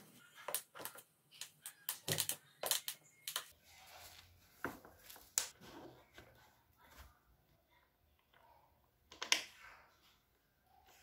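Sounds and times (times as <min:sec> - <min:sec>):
plastic chair parts clicking: 0:00.5 - 0:03.5.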